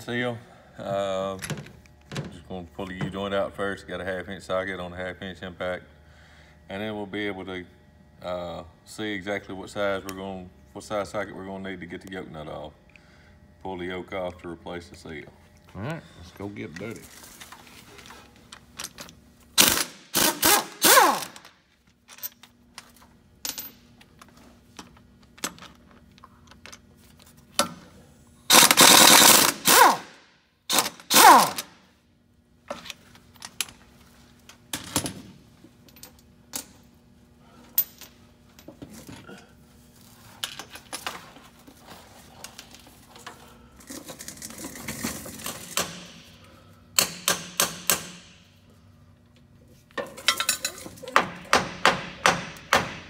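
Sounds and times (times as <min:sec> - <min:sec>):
tools and parts clicking: 0:18.7 - 0:27.8, 0:50.0 - 0:51.1
impact wrench hammering: 0:19.6 - 0:21.5, 0:28.5 - 0:31.7, 0:45.6 - 0:48.5, 0:50.3 - 0:53.0.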